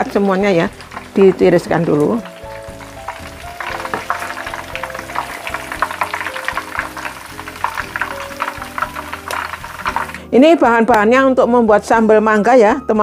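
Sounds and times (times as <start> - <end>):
hot oil crackling and sizzling: 0.0 - 10.4
soft background music: 0.0 - 13.0.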